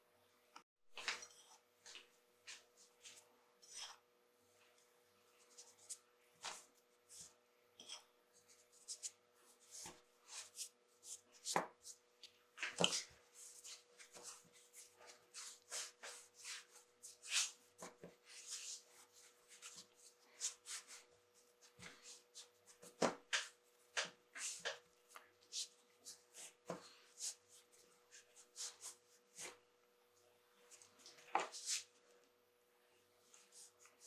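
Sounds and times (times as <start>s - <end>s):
dough rubbing and patting on wood: 5.4s - 29.6s, 30.7s - 32.0s.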